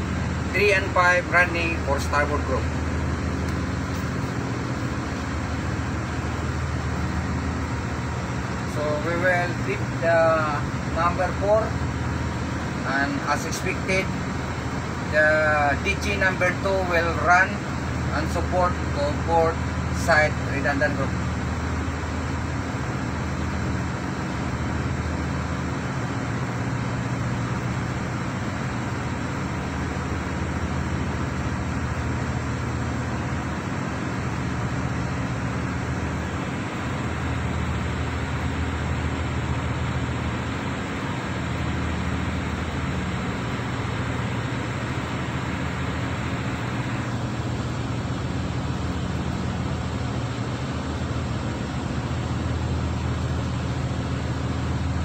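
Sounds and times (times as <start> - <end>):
diesel generators humming: 0.0 - 55.0.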